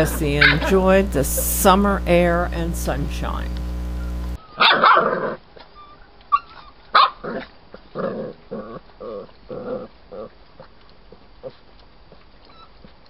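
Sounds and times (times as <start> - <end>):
puppies barking: 0.0 - 1.3, 4.4 - 5.2, 6.3 - 7.2.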